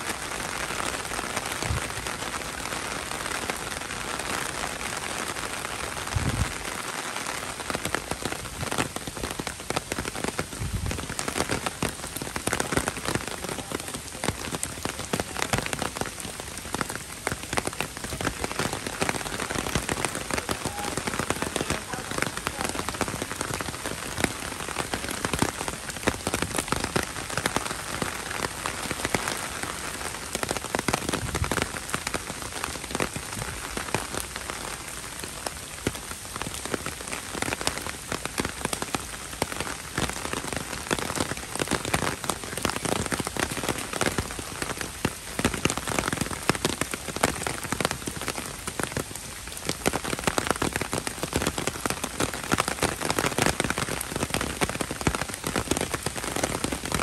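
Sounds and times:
heavy rain pouring: 0:00.0 - 0:57.0.

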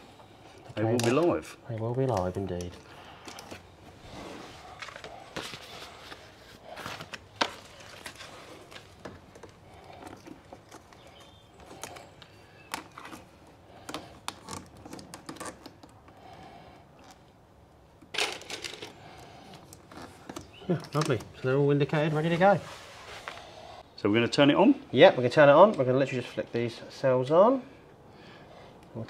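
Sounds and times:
rustling of labels and cables: 0:00.1 - 0:23.8.

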